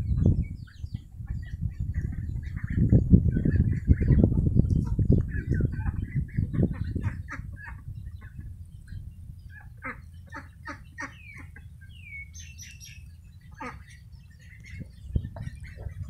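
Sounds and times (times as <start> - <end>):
chickens clucking: 0.0 - 16.0
small bird chirping: 0.0 - 16.0.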